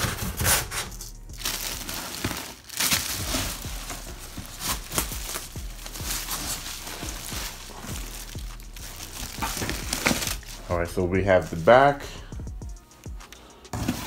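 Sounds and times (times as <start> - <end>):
cardboard rubbing: 0.0 - 10.7
plastic wrap crinkling: 0.0 - 12.0.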